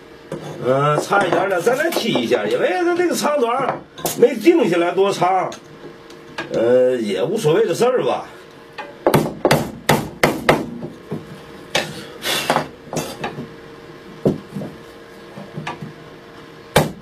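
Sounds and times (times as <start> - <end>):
hammer striking chisel: 9.1 - 10.9, 16.8 - 17.0.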